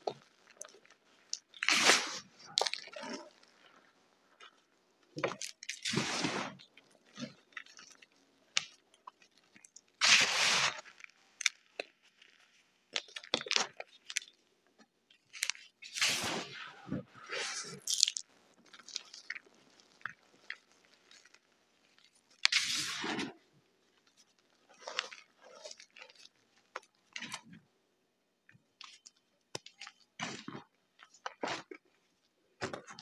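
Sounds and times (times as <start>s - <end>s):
small crackles of crumbs: 0.0s - 27.7s, 28.4s - 33.0s
hands crumbling chalk: 5.2s - 14.4s, 17.3s - 23.1s.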